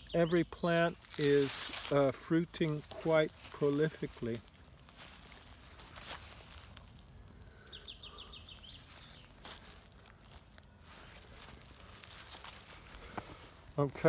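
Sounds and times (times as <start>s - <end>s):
bird trilling: 6.9s - 9.4s.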